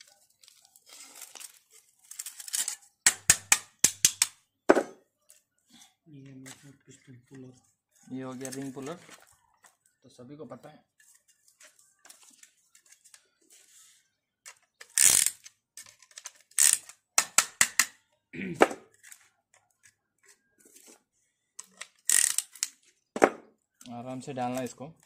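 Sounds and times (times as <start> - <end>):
metal tools clicking and clacking: 2.0 - 4.4, 14.5 - 18.0, 21.6 - 22.8.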